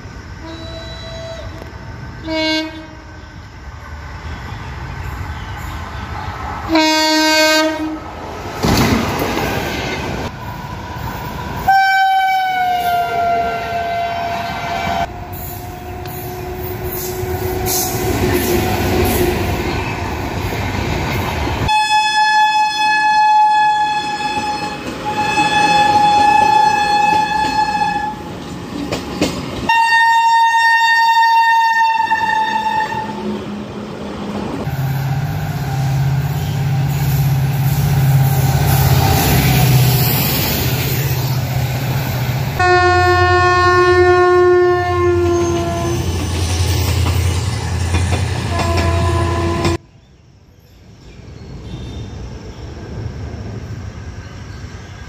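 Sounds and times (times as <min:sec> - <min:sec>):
locomotive horn blasts: 0:00.4 - 0:03.2, 0:06.7 - 0:08.0, 0:11.7 - 0:18.0, 0:21.7 - 0:28.2, 0:29.7 - 0:33.2, 0:42.6 - 0:46.0, 0:48.5 - 0:49.8
train wheels rumbling and clattering: 0:07.9 - 0:11.7, 0:14.5 - 0:21.7, 0:23.9 - 0:29.8, 0:32.0 - 0:42.6, 0:45.0 - 0:49.8.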